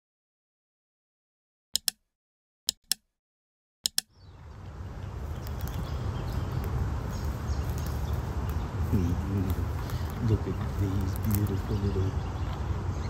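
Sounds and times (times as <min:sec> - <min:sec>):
mouse clicks: 0:01.8 - 0:02.0, 0:02.7 - 0:03.1, 0:03.8 - 0:04.1
steady low rumble: 0:04.1 - 0:13.0.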